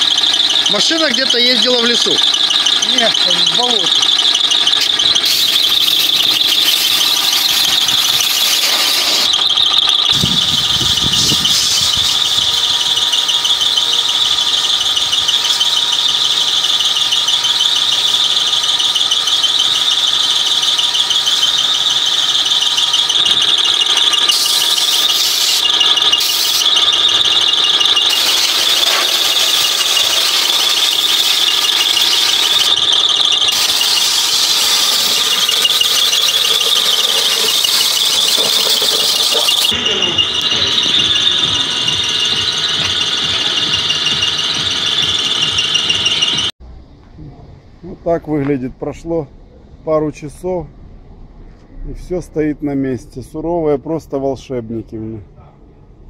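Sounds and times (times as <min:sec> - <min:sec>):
compressed-air blow gun hissing: 0:04.8 - 0:13.0, 0:24.0 - 0:40.1.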